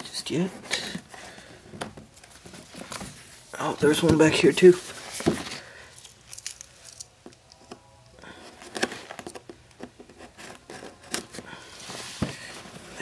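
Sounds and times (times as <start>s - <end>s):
cardboard box rustling: 0.5s - 5.7s, 10.3s - 13.0s.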